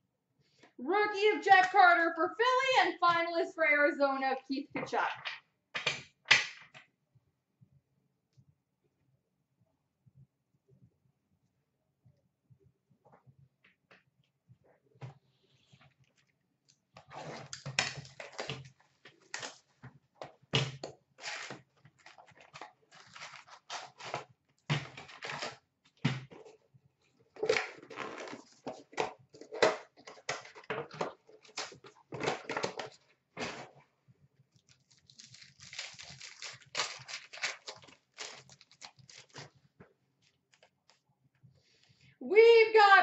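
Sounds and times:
foil packs crinkling: 21.2 - 24.2, 34.6 - 39.6.

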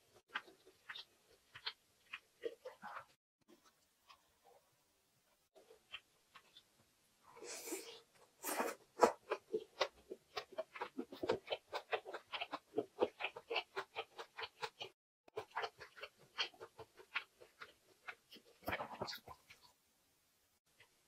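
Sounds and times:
wet chewing mouth clicks: 0.2 - 4.3, 7.5 - 19.7.

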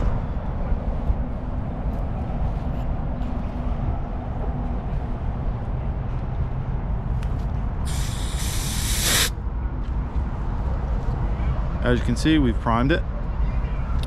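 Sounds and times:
steady low rumble: 0.0 - 13.5
propane hissing from valve: 7.9 - 9.4.

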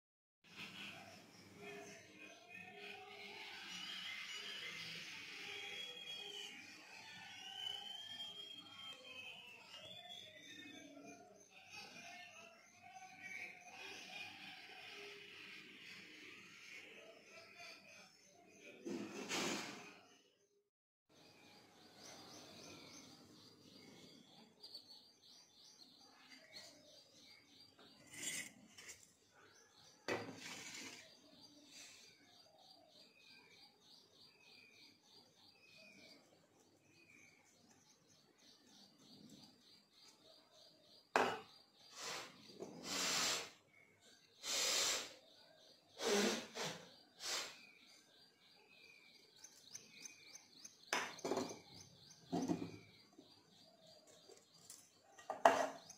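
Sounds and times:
bird chirping: 0.5 - 18.9, 21.1 - 55.9
flour scraped out of steel bowl: 28.0 - 29.1, 30.1 - 31.2.

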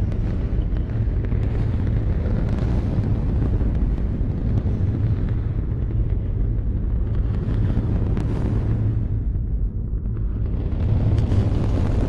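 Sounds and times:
rocket engines rumbling: 0.0 - 12.0
rocket exhaust crackles: 0.0 - 12.0.

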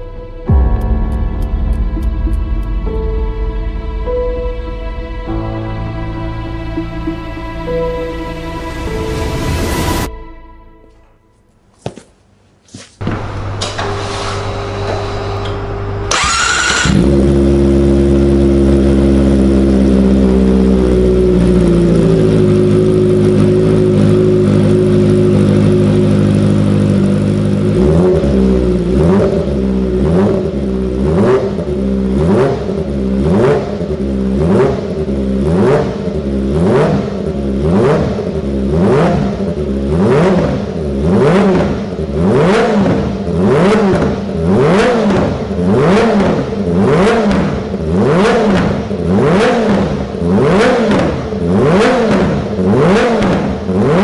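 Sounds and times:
motorcycle engine revving: 13.0 - 54.0
motorcycle engine idling: 17.0 - 37.6.

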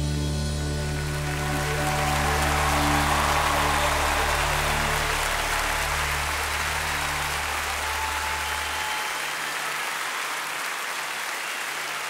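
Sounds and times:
background music low notes: 0.0 - 7.6
steady noisy hiss: 0.0 - 11.4.

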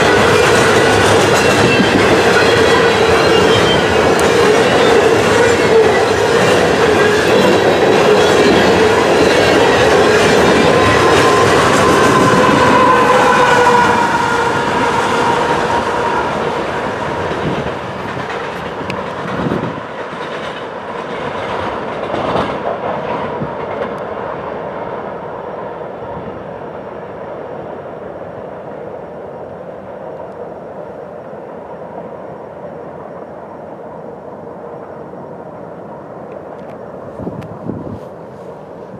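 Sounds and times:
train wheels clattering on rails: 0.0 - 25.0.

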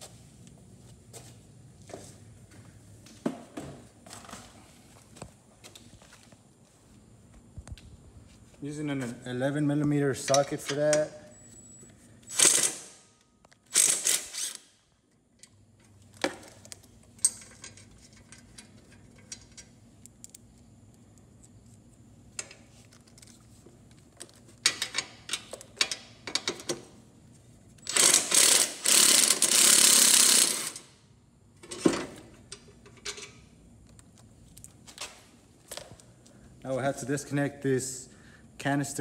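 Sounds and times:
power driver running: 27.8 - 30.8.

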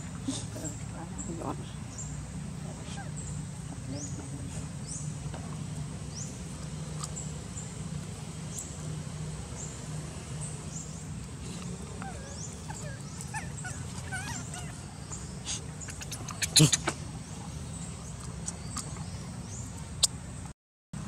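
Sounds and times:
steady low hum: 0.0 - 21.0
infant monkey squeaking: 12.0 - 17.1.

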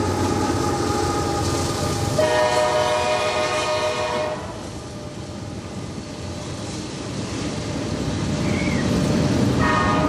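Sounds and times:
freight train rumbling past: 0.0 - 10.0
locomotive horn chord: 2.1 - 4.6, 9.6 - 10.0.

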